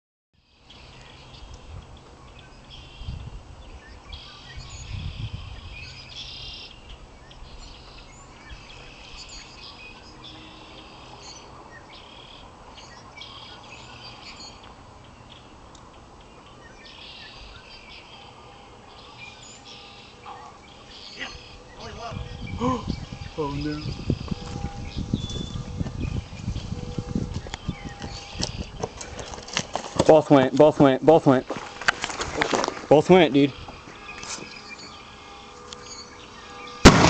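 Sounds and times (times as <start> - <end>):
birds chirping: 0.4 - 37.0
low rumbles: 20.3 - 29.5.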